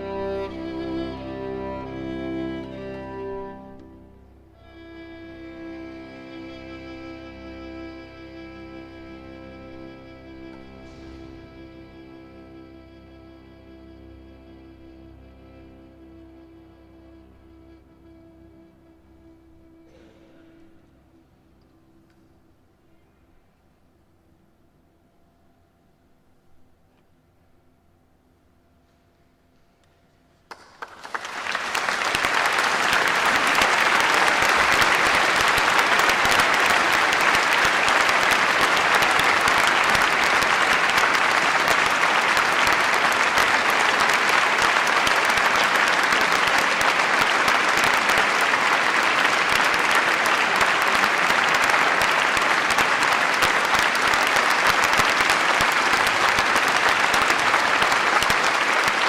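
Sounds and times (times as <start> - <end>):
audience applause: 0.0 - 3.9, 4.6 - 15.8, 30.5 - 59.0.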